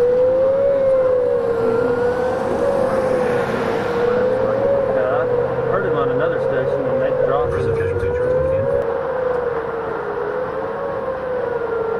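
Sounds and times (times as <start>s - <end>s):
vehicle noise: 0.0s - 11.9s
warning siren wailing: 0.0s - 11.9s
wind rumble: 7.0s - 8.9s.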